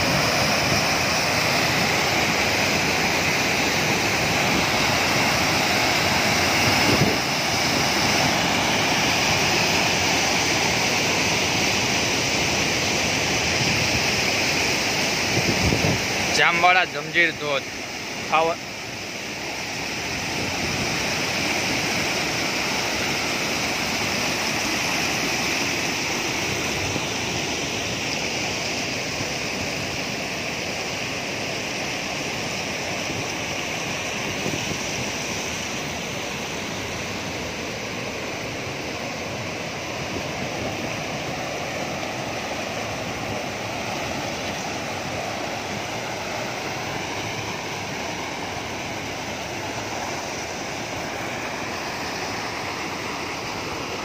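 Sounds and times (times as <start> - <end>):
stream water rushing over rocks: 0.0 - 54.0.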